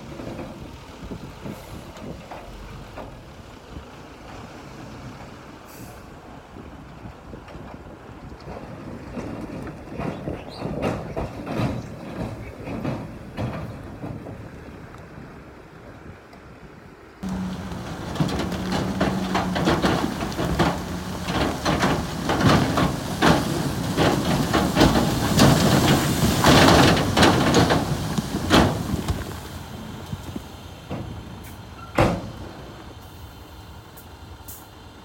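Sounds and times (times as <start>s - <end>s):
rocks and soil clattering: 17.2s - 33.0s
heavy machine engine running: 17.2s - 35.0s.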